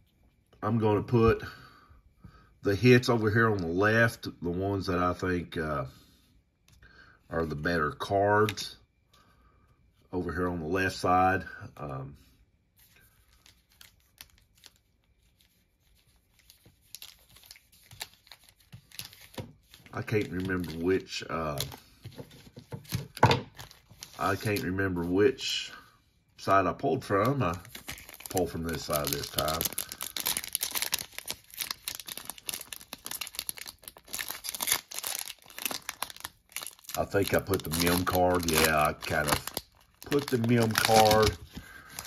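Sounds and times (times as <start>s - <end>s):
foil wrappers crinkling: 12.8s - 25.2s, 27.0s - 42.0s.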